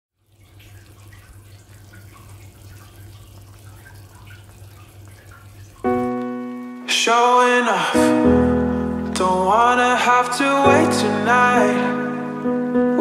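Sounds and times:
small drips or splashes: 0.1 - 6.9
water running: 0.1 - 8.2.

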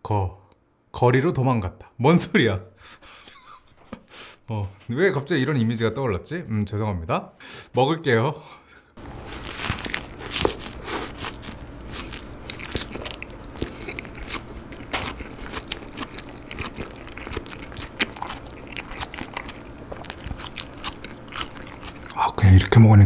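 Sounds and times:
biting into a burger: 9.0 - 22.2
chewing with wet mouth clicks: 9.9 - 22.2.

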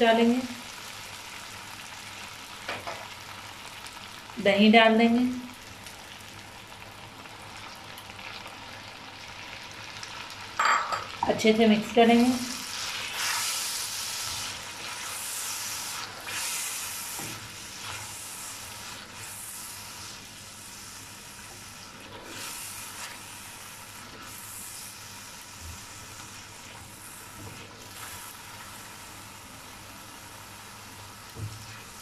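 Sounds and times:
food sizzling in a pan: 0.0 - 32.0
spatula stirring and scraping: 12.1 - 20.4, 21.4 - 25.0, 25.7 - 28.9.

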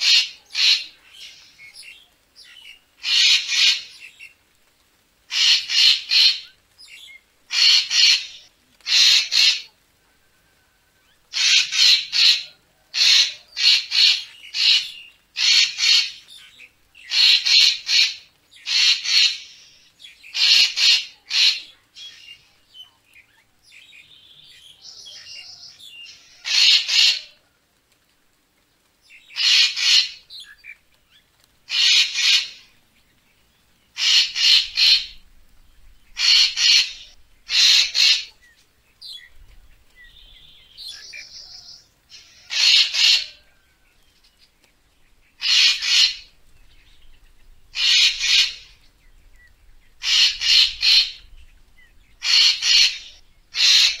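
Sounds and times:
soft faint bird call: 0.0 - 54.0
bird harsh short calls: 3.0 - 4.2, 5.3 - 6.5, 7.5 - 9.7, 11.3 - 16.2, 17.1 - 22.4, 24.9 - 27.4, 29.3 - 30.2, 31.7 - 32.7, 34.0 - 35.2, 36.1 - 38.4, 40.8 - 43.5, 45.4 - 46.4, 47.7 - 48.8, 50.0 - 51.4, 52.2 - 54.0.

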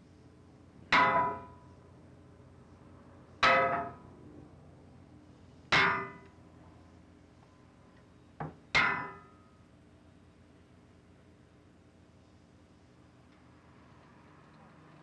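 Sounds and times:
hammer clanging on metal: 5.8 - 6.3, 8.8 - 9.3.

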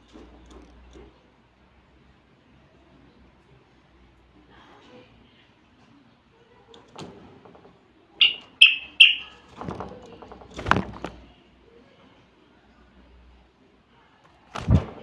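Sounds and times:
rustling in a wire cage: 0.0 - 1.3, 6.7 - 11.3, 14.2 - 15.0
bird whistling: 8.2 - 9.3.

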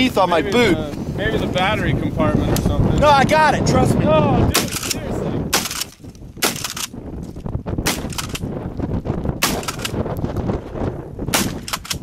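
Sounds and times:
rifle shots: 4.5 - 6.9, 7.8 - 8.5, 9.4 - 10.0, 11.3 - 12.0.

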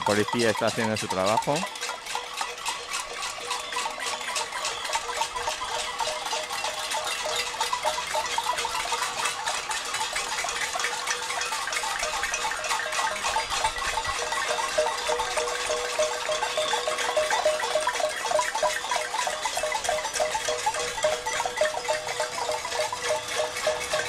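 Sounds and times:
crowd banging pots and pans: 0.0 - 24.0.

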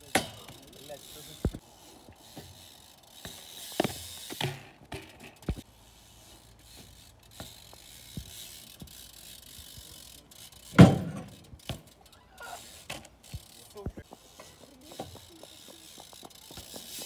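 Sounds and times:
bike tyres and frame knocking: 0.0 - 1.6, 2.2 - 5.7, 6.5 - 12.0, 12.8 - 17.0
bike freewheel ticking: 0.0 - 17.0
wheels thumping on wooden box: 10.7 - 11.9.

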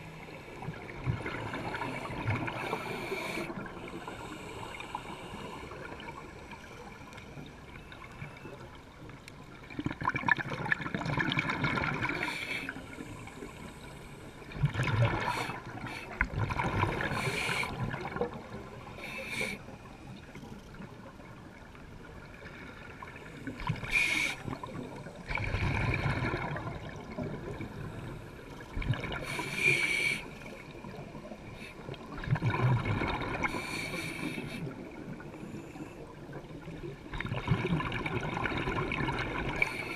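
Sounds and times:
exhaled bubbles gurgling: 0.0 - 7.0, 9.6 - 13.7, 14.4 - 19.0, 22.2 - 35.4, 36.1 - 39.9
regulator hissing on inhale: 1.6 - 7.0, 12.2 - 14.4, 17.0 - 17.9, 18.9 - 19.9, 23.8 - 24.7, 29.2 - 30.7, 33.4 - 36.1.

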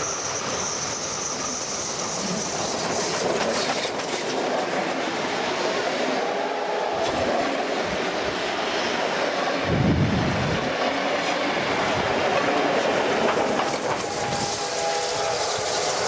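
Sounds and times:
train wheels clattering over rails: 0.0 - 5.6, 7.0 - 16.0
steam locomotive passing: 0.0 - 16.0.

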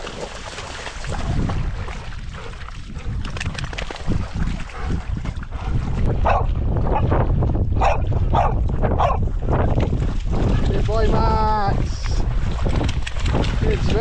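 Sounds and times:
dogs splashing through water: 0.0 - 14.0
wind buffeting microphone: 0.9 - 14.0
dog barking: 6.2 - 7.1, 7.8 - 9.2.

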